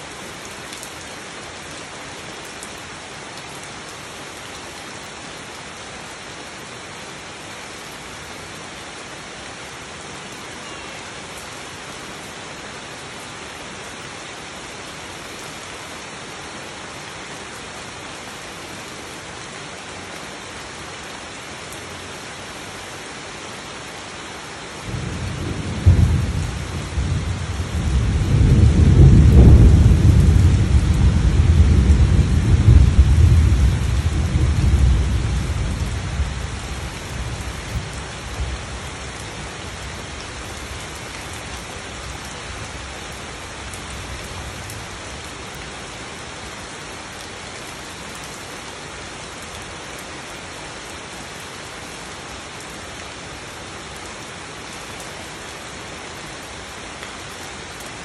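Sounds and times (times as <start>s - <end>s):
rain falling on leaves: 0.0s - 58.0s
thunder rumble: 24.9s - 36.2s.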